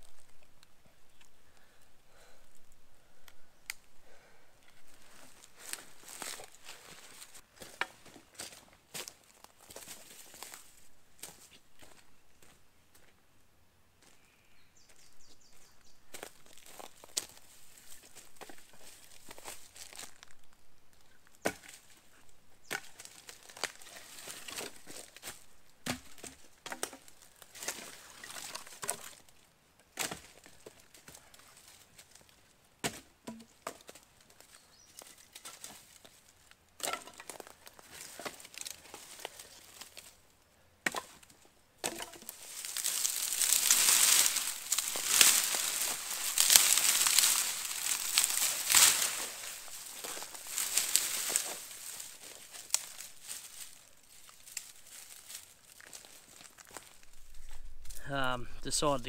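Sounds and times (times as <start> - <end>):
wooden knocks and cracks: 25.8 - 29.2, 32.8 - 34.0, 41.8 - 53.0
loud crackly rustling: 42.2 - 58.1.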